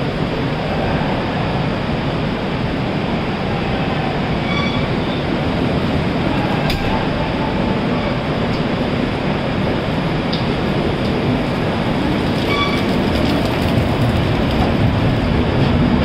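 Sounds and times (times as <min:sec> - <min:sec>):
train coaches rolling past: 0:00.0 - 0:16.0
faint squeal: 0:03.5 - 0:05.3.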